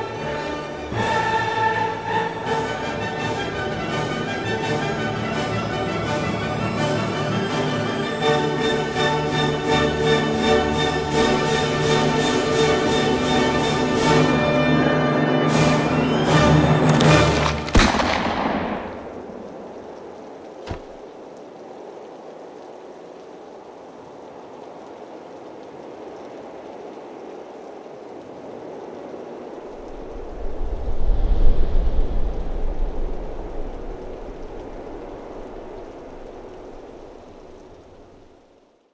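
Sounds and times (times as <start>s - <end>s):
rushing outdoor ambience: 0.0s - 38.9s.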